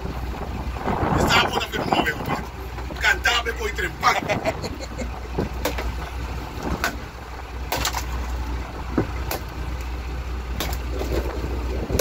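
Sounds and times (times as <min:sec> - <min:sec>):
steady low hum: 0:00.0 - 0:12.0
wooden club striking fish: 0:06.7 - 0:07.0, 0:07.7 - 0:08.3, 0:08.9 - 0:09.5, 0:10.6 - 0:11.4
fish thudding against boat hold: 0:07.7 - 0:09.6, 0:10.5 - 0:12.0.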